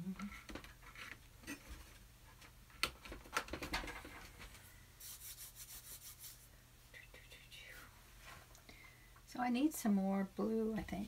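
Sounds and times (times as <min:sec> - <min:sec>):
hands rubbing painting surface: 0:05.0 - 0:06.5.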